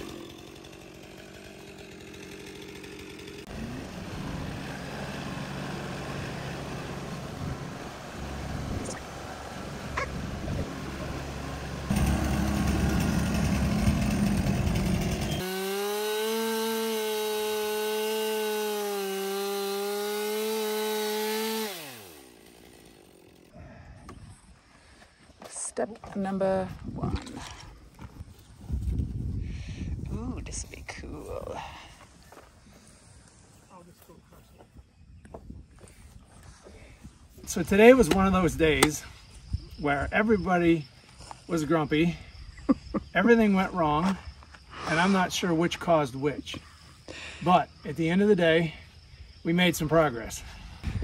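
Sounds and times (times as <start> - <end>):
chainsaw cutting through log: 0.0 - 23.6.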